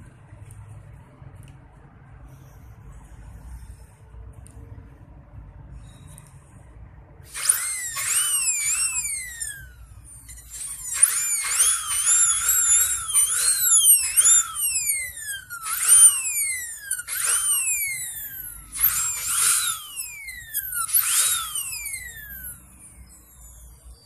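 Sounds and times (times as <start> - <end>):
dental drill whining: 7.3 - 24.0.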